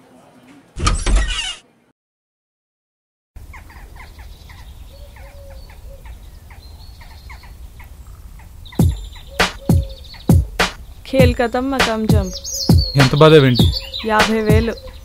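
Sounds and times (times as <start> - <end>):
birds chirping: 3.4 - 15.0.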